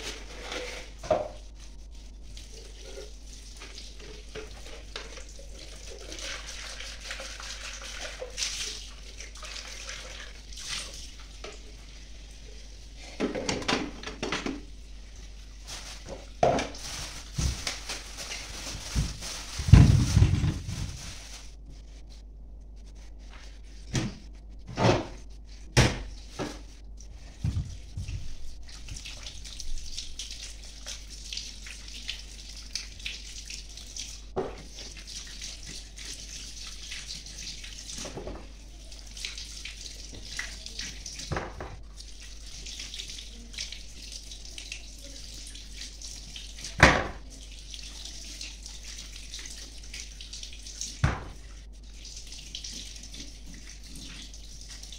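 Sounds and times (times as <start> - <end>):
dishes clinking and knocking: 13.2 - 14.7
tap running into sink: 51.0 - 51.4.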